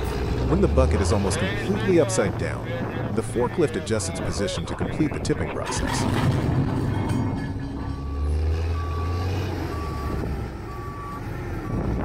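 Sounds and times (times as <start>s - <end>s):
forklift engine drone: 0.0s - 12.0s
reversing alarm beeping: 7.3s - 12.0s.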